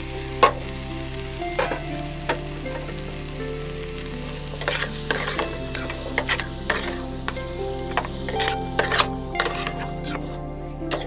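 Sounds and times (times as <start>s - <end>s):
food sizzling in a frying pan: 0.0s - 11.0s
metal spatula scraping a pan: 4.6s - 7.3s, 7.9s - 11.0s.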